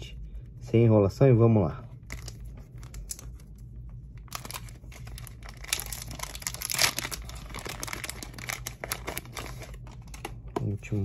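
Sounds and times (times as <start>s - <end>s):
foil wrapper crinkling and tearing: 2.0s - 3.4s, 4.2s - 10.4s.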